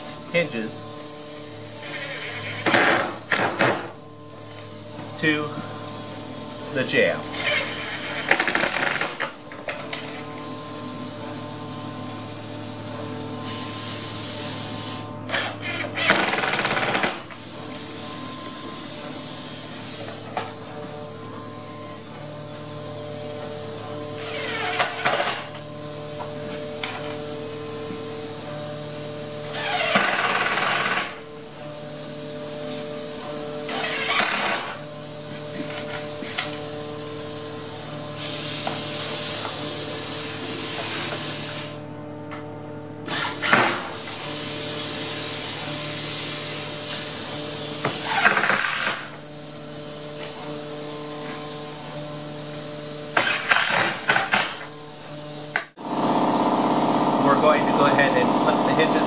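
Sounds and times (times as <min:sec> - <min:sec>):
power screw gun driving screws: 0:01.8 - 0:04.6, 0:07.3 - 0:10.2, 0:14.8 - 0:17.4, 0:24.2 - 0:25.6, 0:29.4 - 0:31.2, 0:33.7 - 0:34.8, 0:43.0 - 0:45.3, 0:47.8 - 0:49.2, 0:53.1 - 0:54.7, 0:55.5 - 0:59.0.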